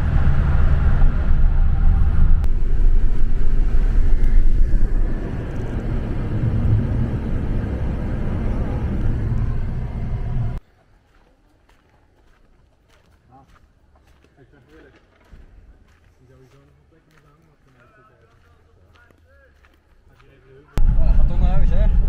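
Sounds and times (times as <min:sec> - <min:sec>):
road and engine rumble in car: 0:00.0 - 0:10.6.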